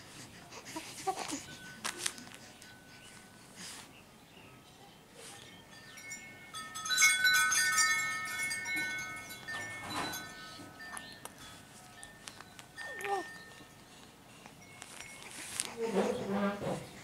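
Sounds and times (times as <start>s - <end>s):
small metal chimes jingling: 5.5s - 16.2s.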